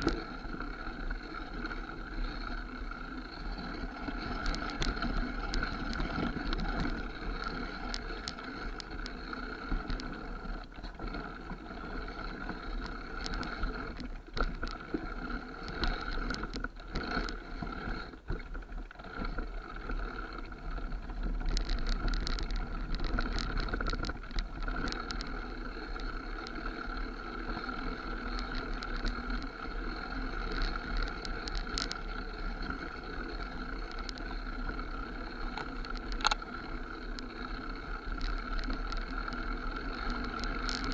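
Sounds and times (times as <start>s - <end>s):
bike whine: 0.0s - 40.9s
bike rattling and knocking over bumps: 15.6s - 40.9s.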